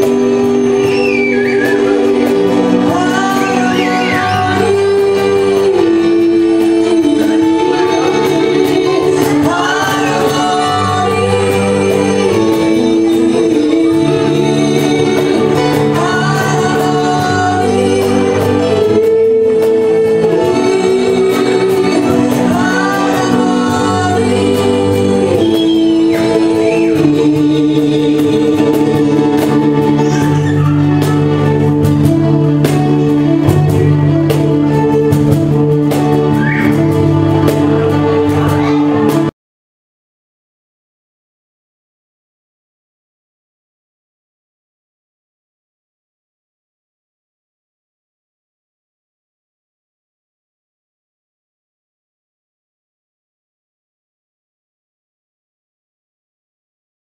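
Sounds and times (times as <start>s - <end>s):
acoustic guitar: 0.0s - 39.3s
male and female singers: 0.0s - 39.3s.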